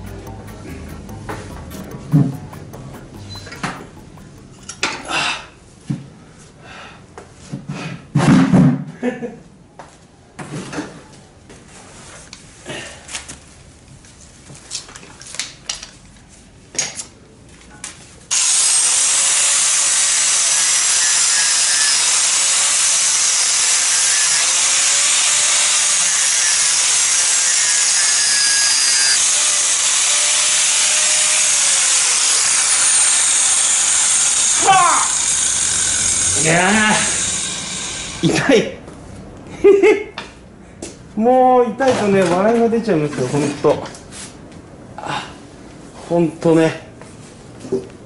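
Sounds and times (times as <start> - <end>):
knocks and clatter: 0.0 - 5.1
angle grinder grinding steel: 0.0 - 5.3, 18.3 - 38.3.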